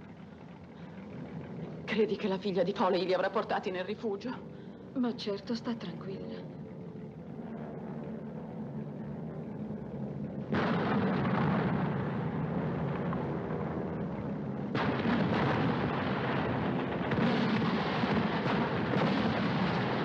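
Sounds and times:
low engine hum: 0.0s - 20.0s
loud gunfire: 14.8s - 20.0s.

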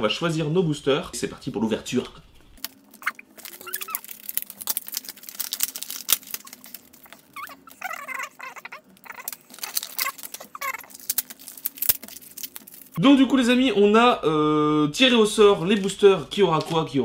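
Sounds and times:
foil wrappers crinkling: 2.6s - 13.0s.

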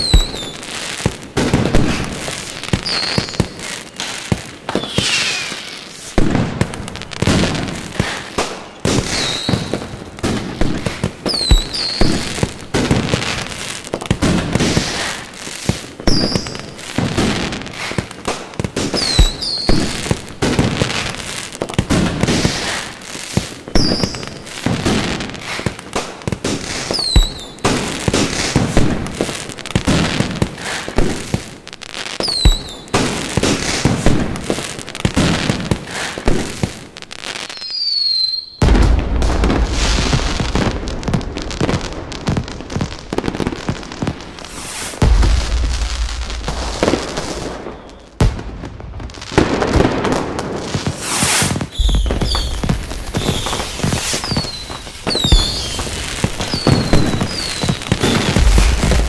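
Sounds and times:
firework whistles falling in pitch: 0.0s - 0.6s, 2.8s - 3.6s, 4.7s - 6.2s, 8.9s - 9.9s, 11.3s - 12.2s, 19.0s - 19.9s, 26.9s - 27.6s, 32.2s - 32.9s, 37.4s - 40.7s, 44.4s - 48.2s, 51.0s - 59.0s
fireworks bursting with bangs: 0.0s - 59.0s.

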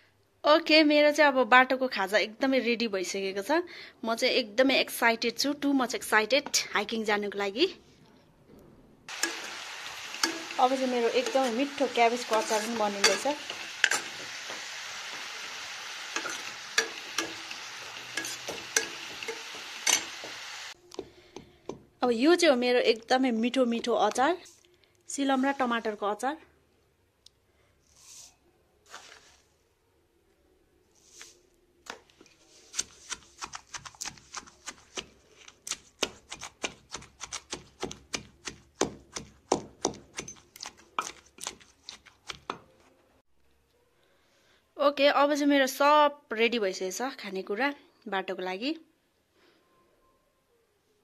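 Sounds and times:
utensil clicking against pan: 9.1s - 10.6s, 11.2s - 15.3s, 16.1s - 20.4s
hot oil sizzling: 9.1s - 20.8s
knife chopping on cutting board: 35.7s - 41.7s.

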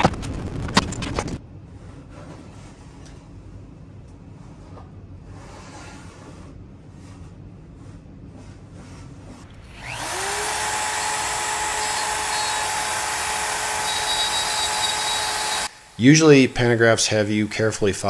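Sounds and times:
wood router whining: 9.4s - 18.0s.

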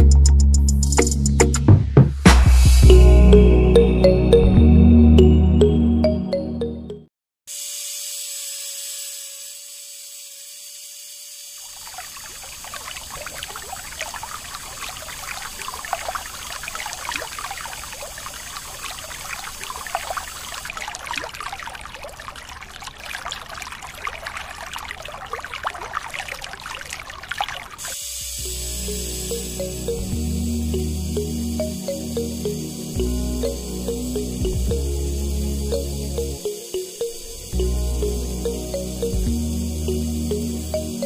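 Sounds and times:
water pouring from hose onto soil: 11.5s - 28.5s
water splashing: 11.6s - 28.0s.

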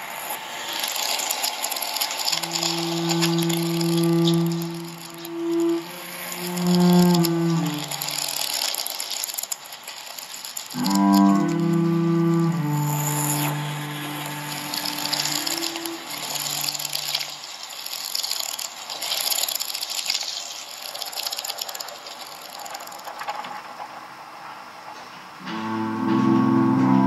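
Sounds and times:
dense crackling clicking texture: 0.0s - 25.0s
held low chord: 10.8s - 16.2s, 25.4s - 27.0s.

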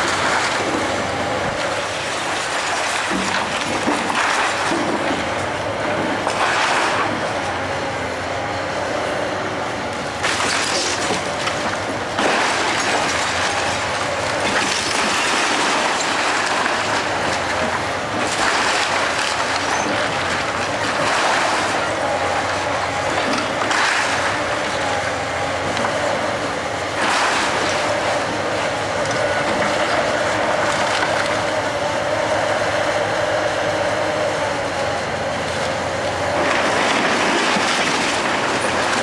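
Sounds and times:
excavator engine running: 0.0s - 39.0s
breaking wood and falling debris: 10.2s - 24.6s, 36.3s - 39.0s.

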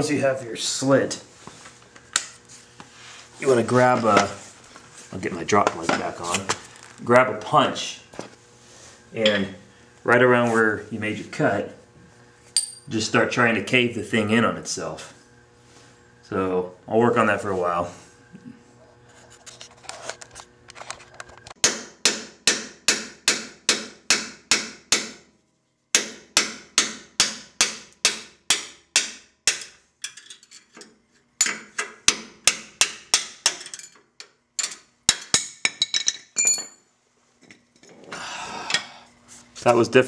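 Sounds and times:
high metallic ring: 12.5s - 12.9s, 36.4s - 36.9s
hammer striking metal punch: 21.6s - 25.2s, 25.9s - 29.8s, 31.4s - 33.6s.

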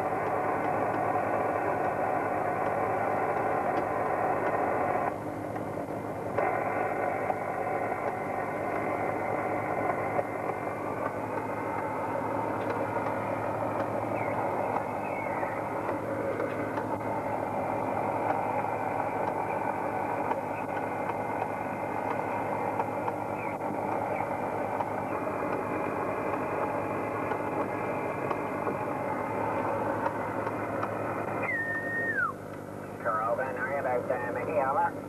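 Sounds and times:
boat engine droning: 0.0s - 35.0s
short downward sliding tone: 31.4s - 32.4s.

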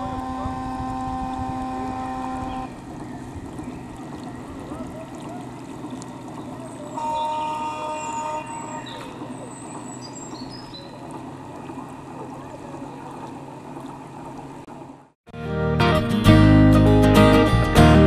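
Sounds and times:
birds chirping and whistling: 5.8s - 11.0s.

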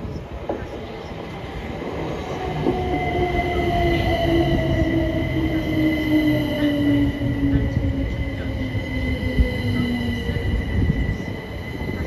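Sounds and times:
electric train whine: 0.0s - 12.0s
wheels rumbling on rails: 0.0s - 12.0s.

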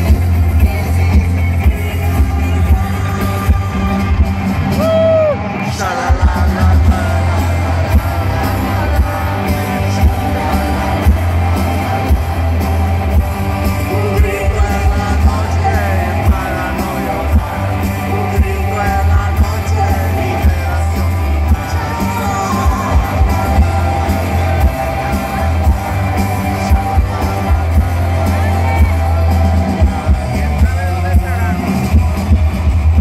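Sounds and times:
woman singing: 0.0s - 4.5s, 13.8s - 30.3s
pop-rock band playing: 0.0s - 33.0s.

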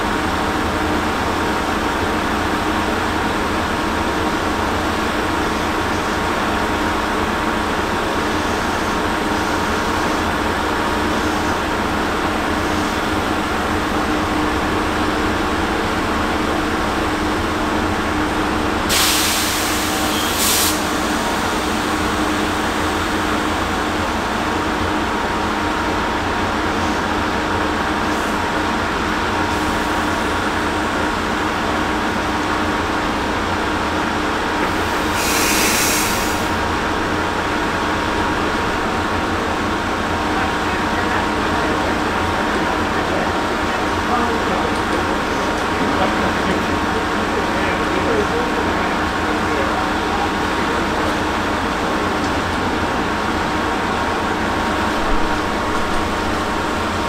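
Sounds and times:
train equipment humming: 0.0s - 57.0s
air release hisses: 18.9s - 21.0s, 34.7s - 36.6s.

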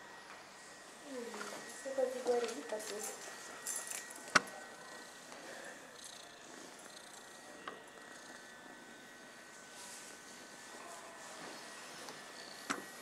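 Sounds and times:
cat purring: 5.9s - 9.4s.

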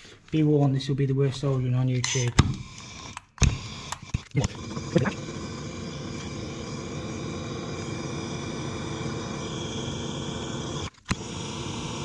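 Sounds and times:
blowtorch hissing: 2.5s - 12.0s.

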